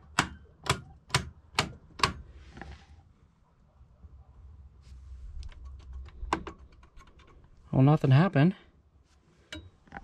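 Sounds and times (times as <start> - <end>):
soft rustle: 2.3 - 3.4, 4.7 - 6.0, 9.0 - 10.0.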